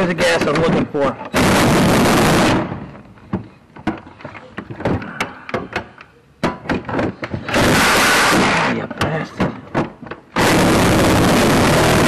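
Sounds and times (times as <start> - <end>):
tools knocking and clicking: 3.3 - 7.6
reciprocating saw running: 10.4 - 12.0.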